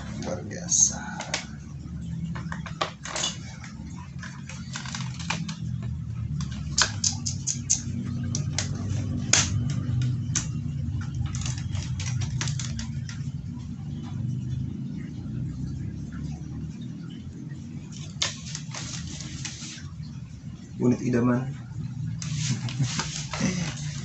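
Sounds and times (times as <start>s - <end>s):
steady low hum: 0.0s - 24.0s
plastic toy rifle clicking and knocking: 11.3s - 13.3s.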